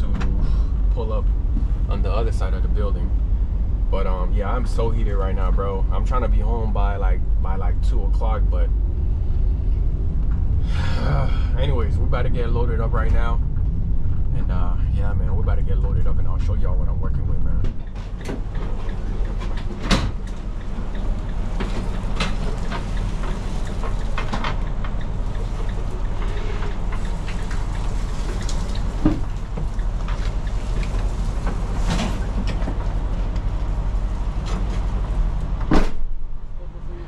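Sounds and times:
van engine hum: 0:00.0 - 0:37.0
sharp clunks and rattles: 0:17.6 - 0:36.5.

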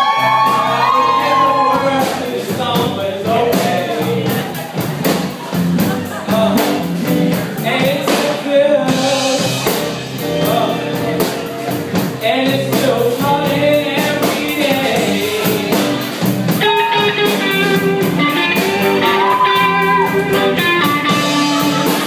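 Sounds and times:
drum kit: 0:00.0 - 0:22.0
electric guitars: 0:00.0 - 0:22.0
man singing: 0:00.0 - 0:22.0.

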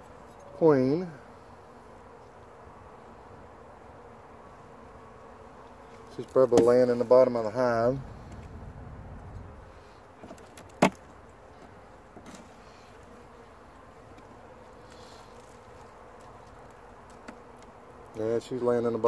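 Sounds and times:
bees buzzing: 0:00.6 - 0:18.5
hive frames clicking: 0:10.2 - 0:12.4, 0:14.9 - 0:18.2.

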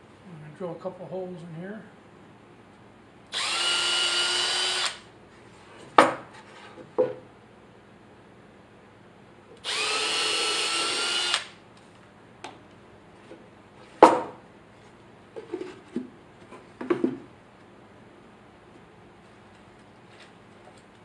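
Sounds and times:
cordless drill boring wood: 0:03.3 - 0:05.0, 0:09.6 - 0:11.5.

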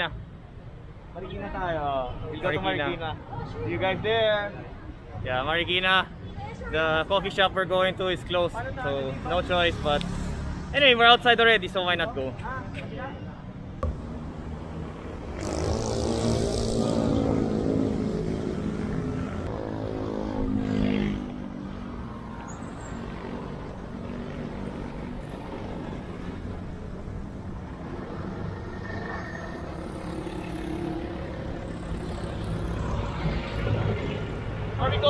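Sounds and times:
traffic noise: 0:00.0 - 0:35.0
vehicle engine passing by: 0:13.8 - 0:21.4.

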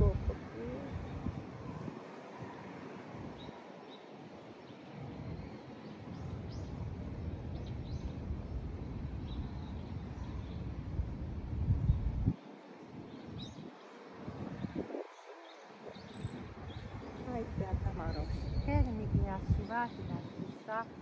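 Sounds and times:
low uneven rumble: 0:14.4 - 0:20.2.

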